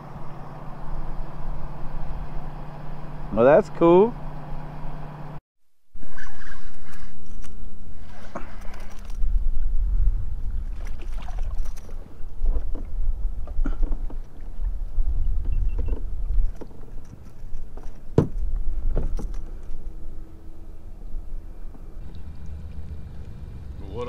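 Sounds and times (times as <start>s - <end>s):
low rumble: 8.8s - 11.1s, 18.5s - 24.0s.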